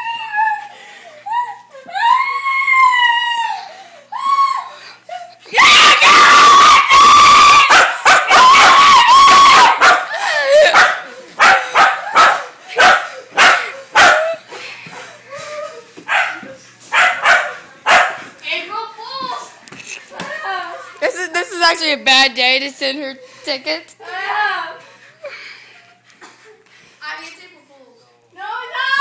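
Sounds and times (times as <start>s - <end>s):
woman screaming: 1.3s - 4.8s, 5.4s - 10.8s
small dog barking: 7.7s - 8.8s, 9.7s - 10.1s, 10.7s - 14.4s, 16.1s - 18.2s.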